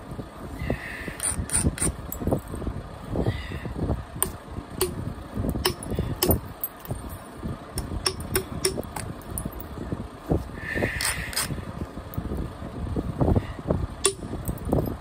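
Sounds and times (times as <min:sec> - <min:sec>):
billet striking stone sharp clicks: 0:04.2 - 0:06.4, 0:07.8 - 0:09.5, 0:14.0 - 0:14.3.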